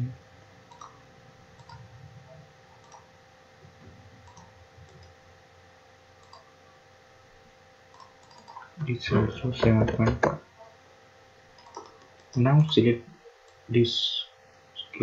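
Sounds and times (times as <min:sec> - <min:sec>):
faint electrical hum: 0:00.0 - 0:15.0
mouse and keyboard clicks: 0:00.7 - 0:01.0, 0:01.6 - 0:01.9, 0:02.8 - 0:03.1, 0:04.2 - 0:05.1, 0:06.2 - 0:06.5, 0:07.9 - 0:08.7, 0:11.6 - 0:12.4.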